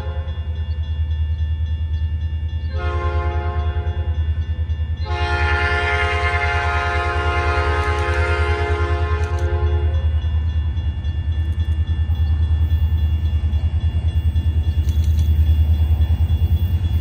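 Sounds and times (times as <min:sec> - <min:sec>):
locomotive air horn blasts: 0:02.7 - 0:04.1, 0:05.0 - 0:10.0.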